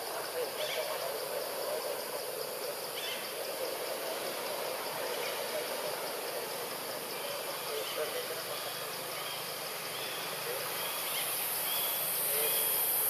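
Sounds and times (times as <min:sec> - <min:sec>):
insects hissing: 0:00.0 - 0:13.0
distant birds: 0:00.4 - 0:12.9.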